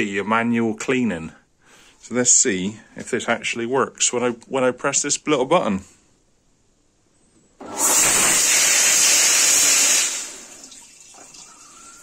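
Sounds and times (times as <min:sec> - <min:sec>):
loud water spray: 0:07.6 - 0:10.7.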